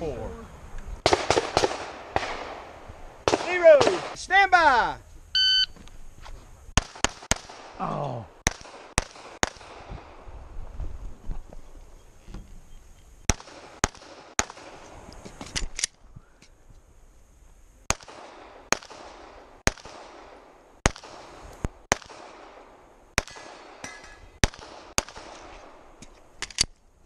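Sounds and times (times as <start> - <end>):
pistol shots: 1.0 - 4.2, 6.8 - 7.8, 8.4 - 10.1, 13.3 - 14.8, 17.9 - 25.9.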